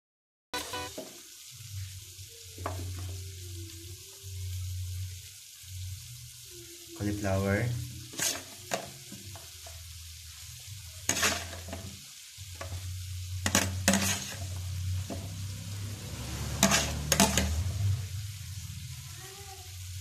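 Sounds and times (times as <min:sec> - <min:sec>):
spatula scraping a pan: 0:08.1 - 0:09.8, 0:11.0 - 0:17.8.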